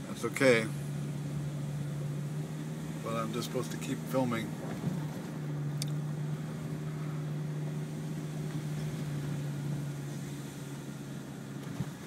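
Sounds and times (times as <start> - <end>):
car engine and tyre hum: 0.0 - 12.0.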